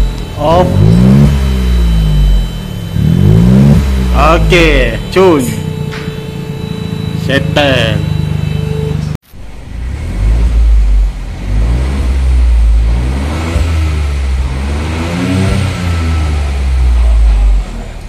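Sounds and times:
car engine idling: 0.0s - 18.0s
car engine revving: 0.0s - 18.0s.

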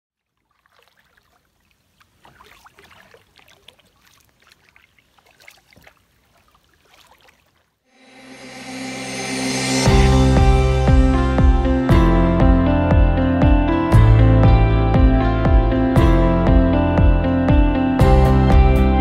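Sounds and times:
water dripping off paddle: 0.2s - 7.7s
paddle splashing in water: 0.2s - 7.9s
music: 7.9s - 19.0s.

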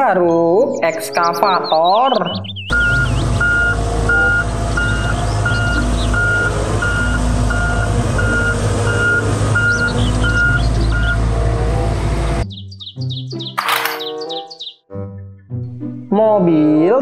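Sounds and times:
birds chirping: 0.0s - 11.3s, 12.4s - 14.8s
diesel engine running: 2.7s - 12.4s.

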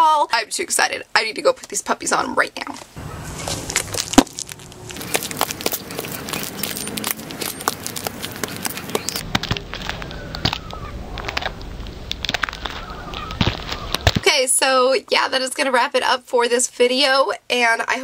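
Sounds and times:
wind rumble on microphone: 3.0s - 14.2s
heels clicking on asphalt: 3.0s - 14.3s.

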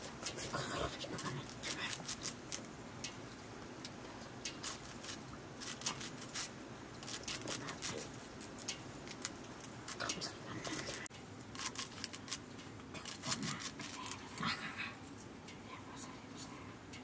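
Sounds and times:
crisp snipping cuts: 4.5s - 12.4s.

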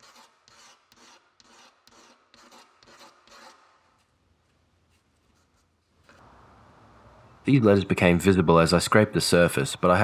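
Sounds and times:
scraper blade scraping wood: 0.0s - 4.1s.

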